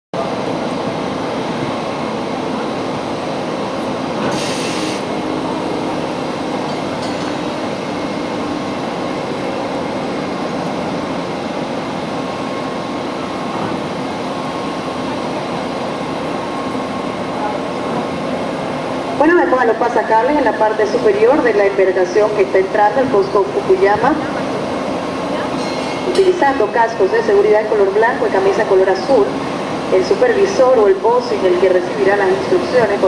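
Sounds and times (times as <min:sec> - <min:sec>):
brief hiss: 0:04.3 - 0:05.1.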